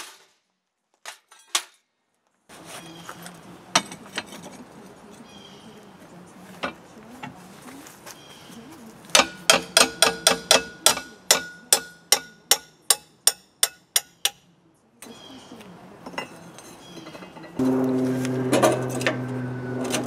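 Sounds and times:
hammer striking metal plate: 0:09.2 - 0:14.4.

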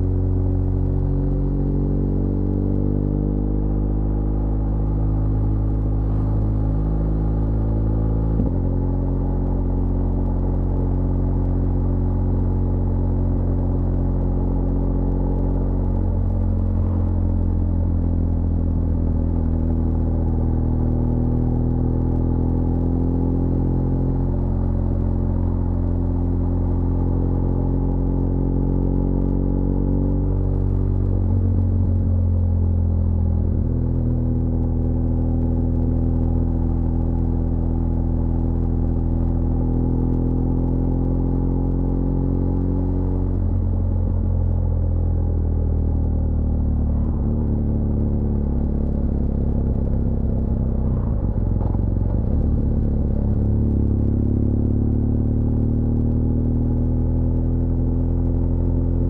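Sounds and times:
motorcycle engine running: 0:30.5 - 0:59.0.

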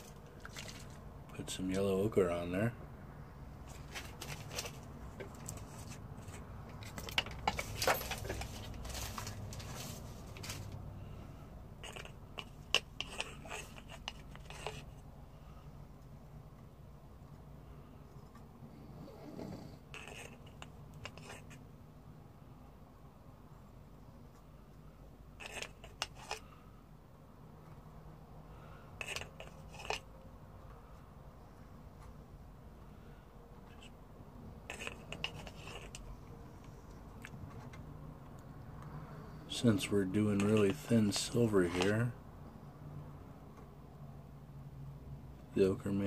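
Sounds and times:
faint steady hum: 0:00.0 - 0:46.0
brush scratching and tapping: 0:03.6 - 0:10.9, 0:11.8 - 0:15.1, 0:20.0 - 0:21.6, 0:25.4 - 0:26.4, 0:29.0 - 0:30.2, 0:34.6 - 0:37.8, 0:39.6 - 0:42.0.

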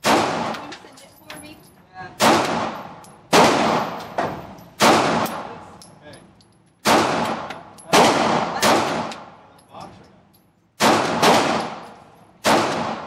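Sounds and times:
pistol shots reverberating: 0:00.0 - 0:00.6, 0:02.2 - 0:05.5, 0:06.8 - 0:09.4, 0:10.8 - 0:13.0.

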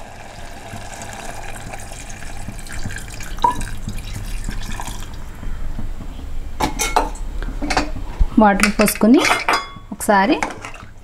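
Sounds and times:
water pouring into gravy: 0:00.0 - 0:05.2.

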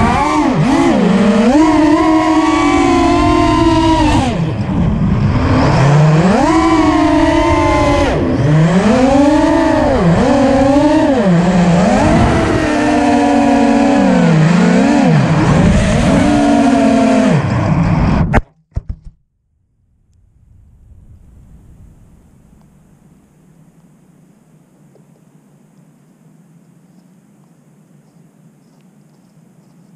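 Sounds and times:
quadcopter motors whining: 0:00.0 - 0:17.8.

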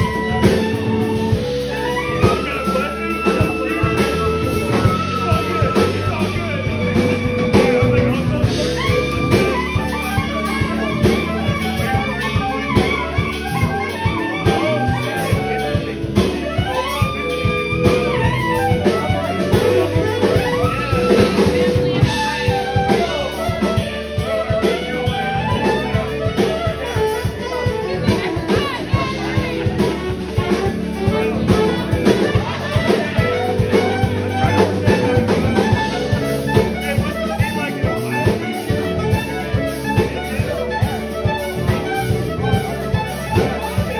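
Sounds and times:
drum kit: 0:00.0 - 0:43.9
electric bass: 0:00.0 - 0:43.9
saxophone melody: 0:00.0 - 0:43.9.

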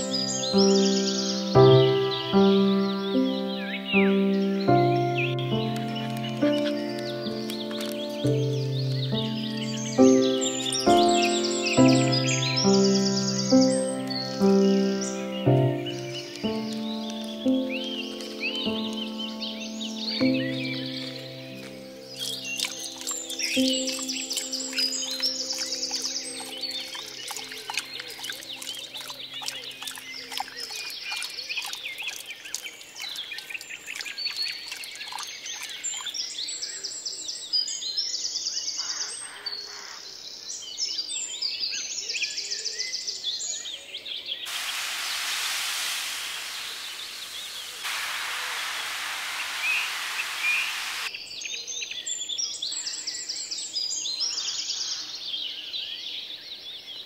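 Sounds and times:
steady rushing hiss: 0:00.0 - 0:31.1, 0:44.5 - 0:51.1
small birds chirping: 0:00.0 - 0:57.0.

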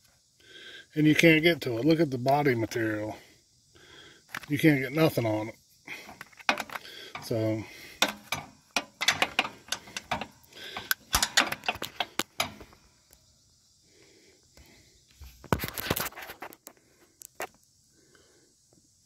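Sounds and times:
wrench scraping metal: 0:06.1 - 0:12.7
wrench clinking against metal: 0:08.0 - 0:12.6.

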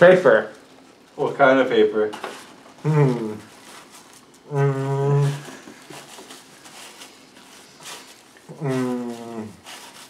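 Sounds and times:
paper being chewed: 0:02.3 - 0:10.0
man's drawn-out vocal sound: 0:02.8 - 0:03.5, 0:04.4 - 0:05.6, 0:08.5 - 0:09.6.

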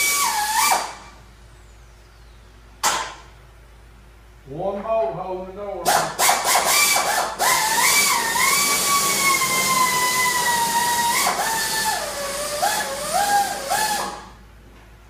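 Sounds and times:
power tool whining: 0:00.0 - 0:01.1, 0:05.9 - 0:14.4.

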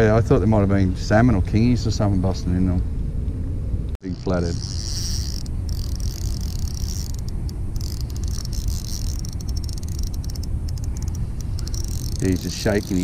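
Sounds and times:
faint high ticking: 0:04.0 - 0:13.0.

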